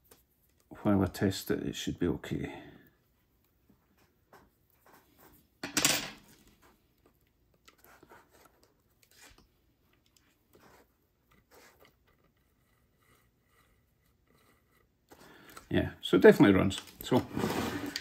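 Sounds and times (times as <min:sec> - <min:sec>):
short loud scrape: 0:17.3 - 0:18.0.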